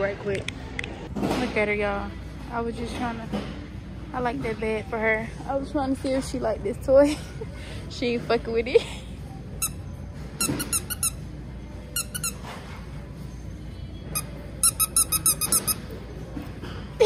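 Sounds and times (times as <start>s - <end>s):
dog toy squeaking: 9.6s - 11.3s, 11.9s - 12.5s, 14.2s - 15.9s.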